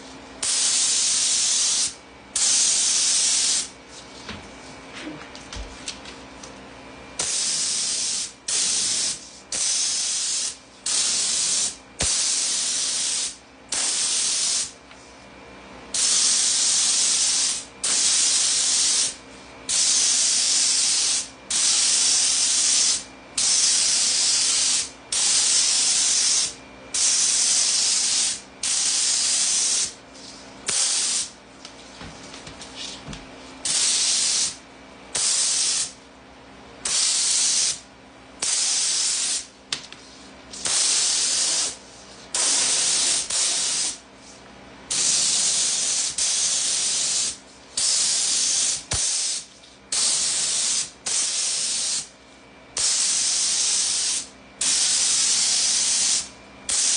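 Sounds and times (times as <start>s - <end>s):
steady low hum: 0.0s - 56.7s
spray gun hissing: 0.4s - 3.7s, 7.2s - 14.7s, 15.9s - 30.0s, 30.7s - 31.3s, 33.6s - 34.6s, 35.2s - 35.9s, 36.8s - 37.8s, 38.4s - 39.5s, 40.6s - 44.0s, 44.9s - 52.1s, 52.8s - 56.9s.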